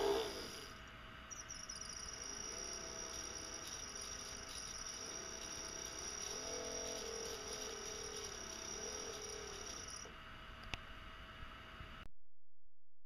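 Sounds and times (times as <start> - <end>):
high-pitched whine: 0.0 - 10.3
electric motor wavering hum: 0.0 - 10.6.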